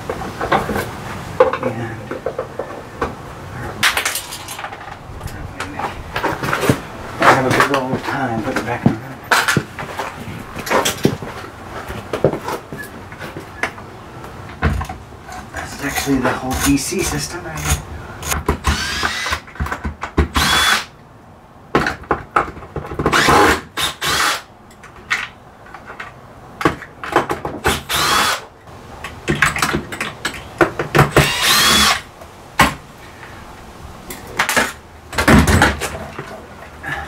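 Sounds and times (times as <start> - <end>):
cordless drill whining: 18.6 - 19.4, 20.4 - 20.9, 23.2 - 24.5, 27.9 - 28.4, 31.2 - 32.0.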